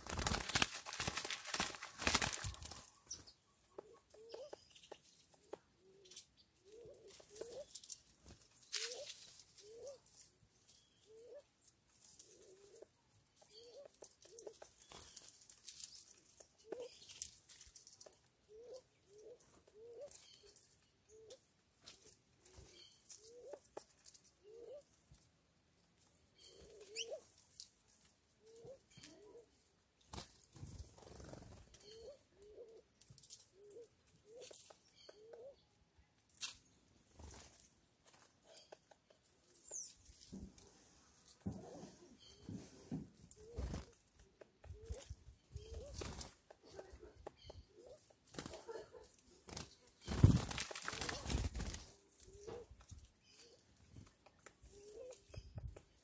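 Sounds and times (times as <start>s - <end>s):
dove calling: 0.0s - 7.8s, 8.7s - 10.1s, 12.2s - 15.3s, 16.4s - 17.2s, 18.4s - 21.4s, 22.0s - 23.8s, 24.4s - 24.9s, 26.4s - 27.3s, 31.2s - 32.9s, 33.5s - 35.7s, 41.6s - 55.9s.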